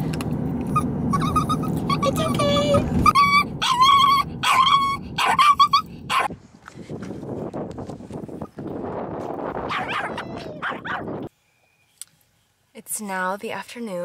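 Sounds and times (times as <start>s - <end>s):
small dog whining and yelping: 0.7s - 6.3s, 9.7s - 11.2s.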